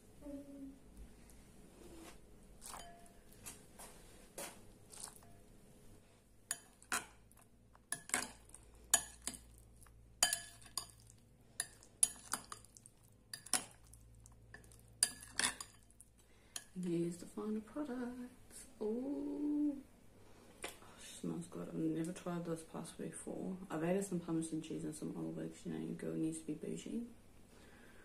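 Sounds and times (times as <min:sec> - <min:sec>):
metal spoon clinking glass bowl: 0:02.6 - 0:03.3, 0:06.5 - 0:07.0, 0:07.9 - 0:09.6, 0:10.2 - 0:13.9, 0:14.5 - 0:16.0.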